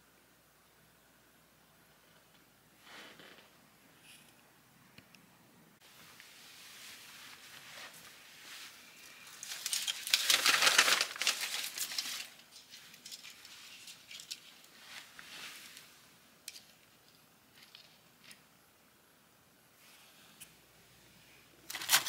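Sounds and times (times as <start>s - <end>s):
pine cone rustling: 6.4s - 18.4s.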